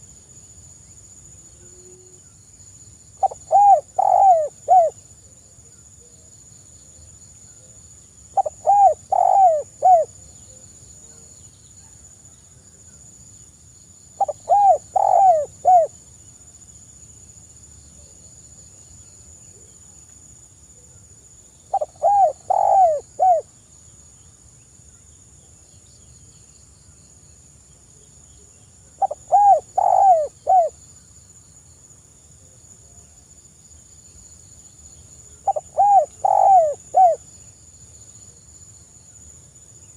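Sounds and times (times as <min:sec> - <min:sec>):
dove cooing: 0:03.2 - 0:05.0, 0:08.4 - 0:10.1, 0:14.2 - 0:15.9, 0:21.7 - 0:23.4, 0:29.0 - 0:30.8, 0:35.4 - 0:37.2.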